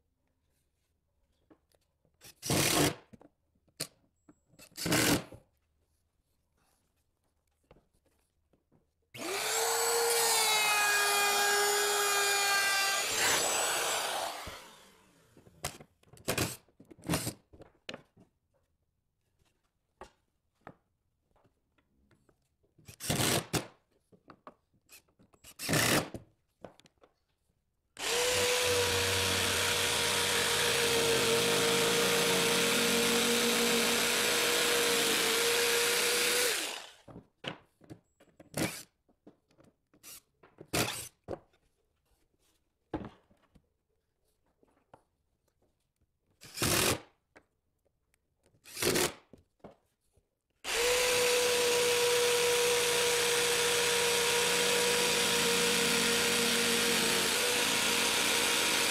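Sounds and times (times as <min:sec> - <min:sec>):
cordless drill whirring: 0:09.2 - 0:15.3, 0:28.0 - 0:37.0, 0:50.7 - 0:58.9
jigsaw cutting plywood: 0:09.2 - 0:15.4, 0:28.0 - 0:37.1, 0:50.7 - 0:58.9.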